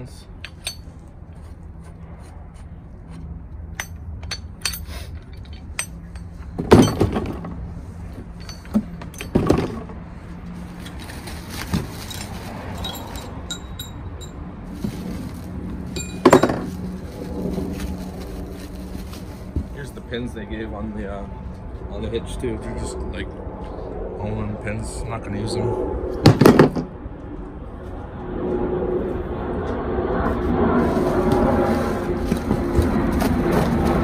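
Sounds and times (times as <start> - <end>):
metal parts clinking: 0.4 - 1.1, 3.7 - 7.5, 8.2 - 9.8, 12.0 - 14.4, 15.9 - 16.7.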